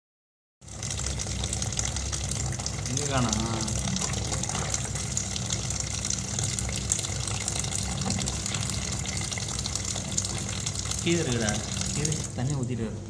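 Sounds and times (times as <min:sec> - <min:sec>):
running water rushing: 0:00.7 - 0:12.8
low constant hum: 0:00.7 - 0:13.0.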